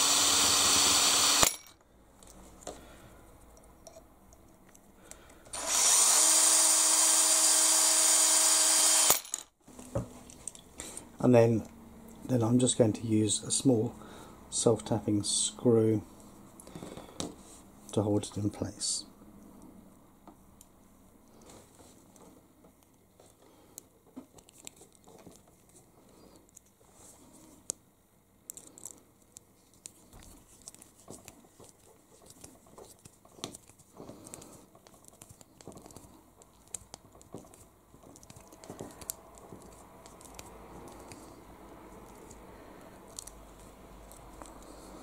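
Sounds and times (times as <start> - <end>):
plastic parts handling: 24.1 - 25.8, 28.5 - 41.4, 43.1 - 44.9.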